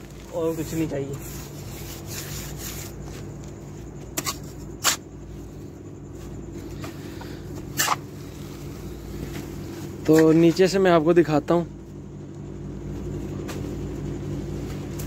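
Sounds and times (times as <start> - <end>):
low steady hum: 0.0 - 15.0
trowel scraping on cement: 1.1 - 3.0, 4.1 - 5.0, 7.7 - 8.0.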